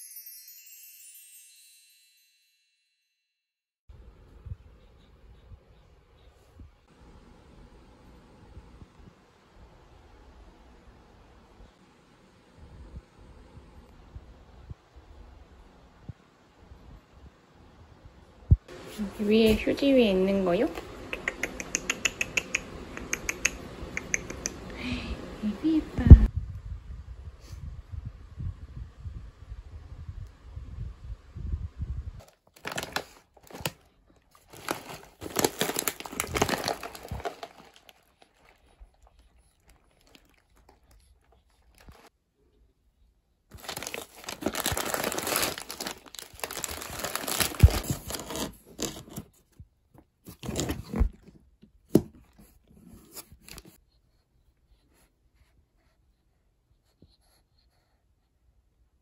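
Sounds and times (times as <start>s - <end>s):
plastic bags crinkling: 32.2s - 42.1s, 43.5s - 49.2s.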